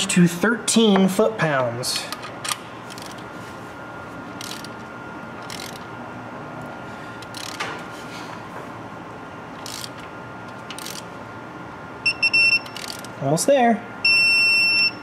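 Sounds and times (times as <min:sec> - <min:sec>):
torque wrench ratchet clicking: 0:02.9 - 0:03.2, 0:04.4 - 0:04.8, 0:05.4 - 0:05.9, 0:07.2 - 0:07.6, 0:09.6 - 0:10.0, 0:10.7 - 0:11.1, 0:12.6 - 0:13.2.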